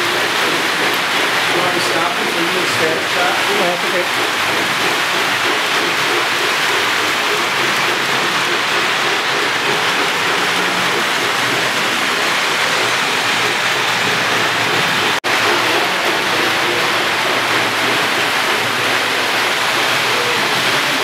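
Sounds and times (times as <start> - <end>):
toy train rumbling on metal track: 0.0 - 21.0.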